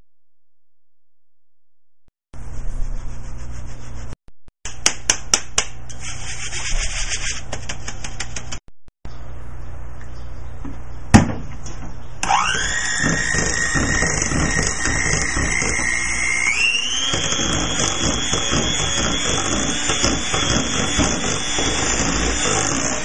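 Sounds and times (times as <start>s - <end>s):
electric mixer motor whine: 12.2s - 23.0s.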